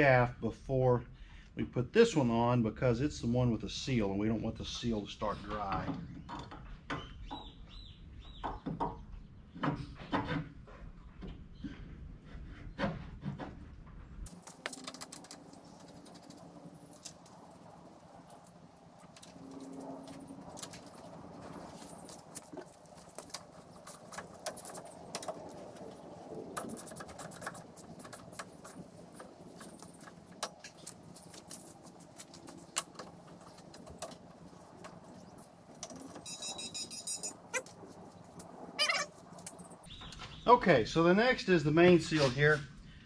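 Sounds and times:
short high squeaks: 36.0s - 37.8s, 38.8s - 39.2s.

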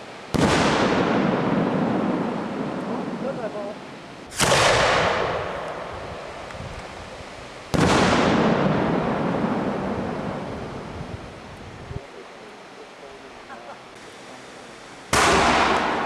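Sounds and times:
firework shells bursting: 4.2s - 6.9s, 7.7s - 10.4s, 15.1s - 16.0s.

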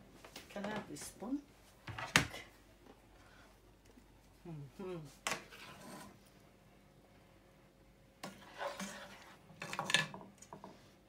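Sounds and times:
utensils scraping in frying pan: 5.3s - 6.2s, 8.2s - 10.1s.

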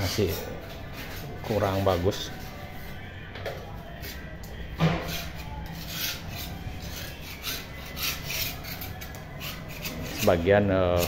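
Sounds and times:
paint scraping off wall: 4.9s - 11.0s.

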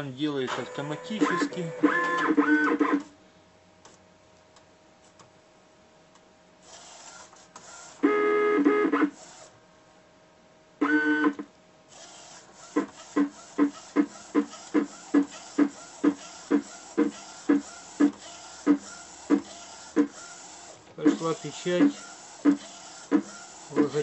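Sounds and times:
faint steady hum: 0.0s - 24.0s
printer motor whine: 0.4s - 3.1s, 6.6s - 9.6s, 10.8s - 24.0s
rhythmic motor pulses: 0.5s - 3.1s, 10.8s - 24.0s.

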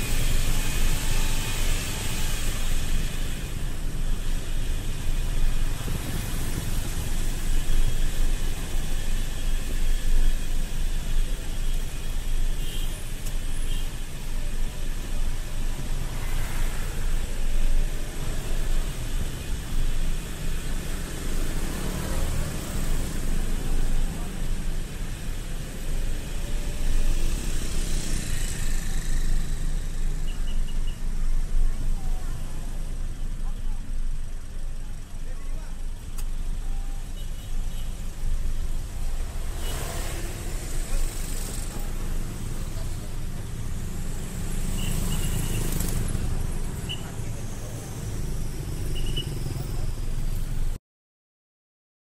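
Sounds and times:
engine noise: 0.0s - 50.8s
road and traffic noise: 0.0s - 50.8s.

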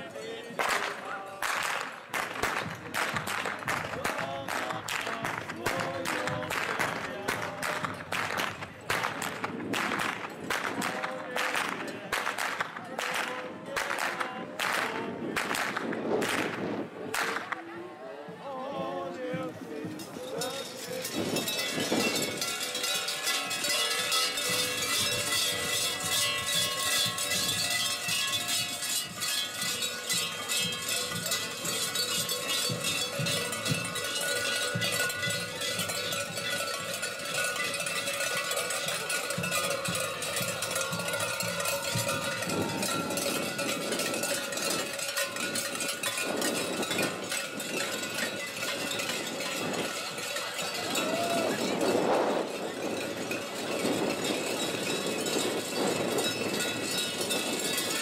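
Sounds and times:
large cowbells clanging: 19.8s - 58.0s.

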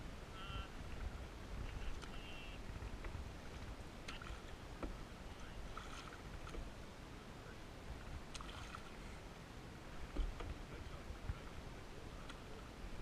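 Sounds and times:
wind rumble on microphone: 0.0s - 6.9s, 7.8s - 13.0s
paddle splashing through water: 0.8s - 6.8s, 8.0s - 9.2s.

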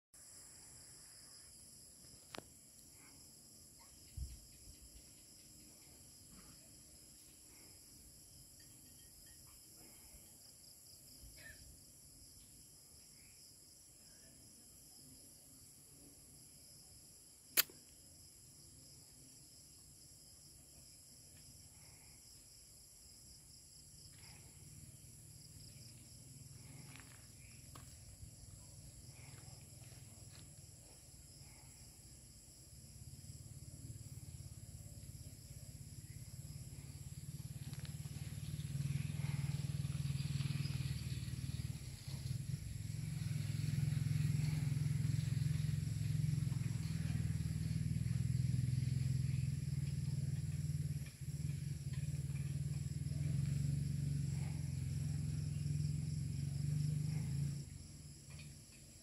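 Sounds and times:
insects chirring: 0.2s - 59.0s
sharp click: 17.6s - 18.0s.

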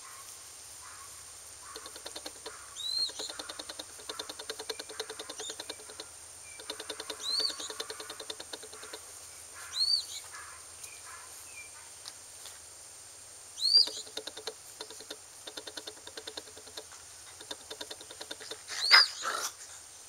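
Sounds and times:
small claws ticking on concrete: 1.6s - 9.1s, 13.8s - 18.9s
puppy squeaks: 6.6s - 9.0s, 13.6s - 14.5s, 17.5s - 19.3s.

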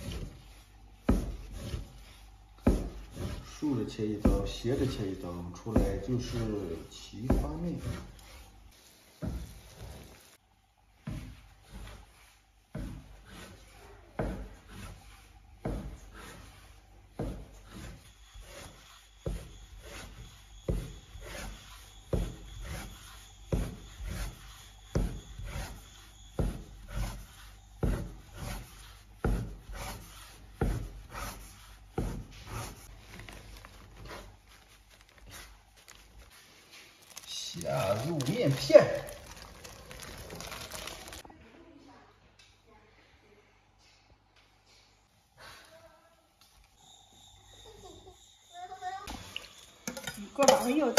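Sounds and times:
blade scraping board: 0.0s - 5.0s, 12.7s - 16.5s, 17.2s - 32.9s
cleaver chopping on wooden board: 2.6s - 3.4s.

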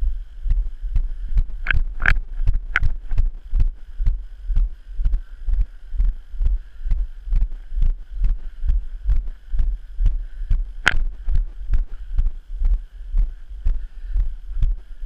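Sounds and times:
wind rumble on microphone: 0.0s - 15.0s
sharp click: 1.6s - 3.0s, 10.8s - 11.1s
footsteps thudding: 10.5s - 12.8s.

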